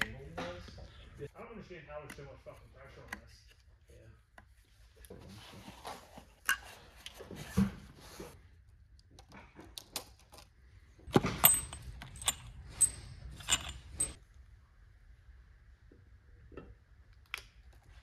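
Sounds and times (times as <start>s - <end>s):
metal studs clinking: 11.1s - 14.2s.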